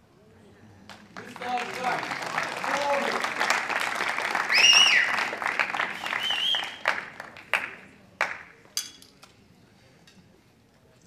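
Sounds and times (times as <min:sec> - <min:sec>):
crowd applause: 0:00.8 - 0:08.5
short high cheers: 0:04.3 - 0:07.0.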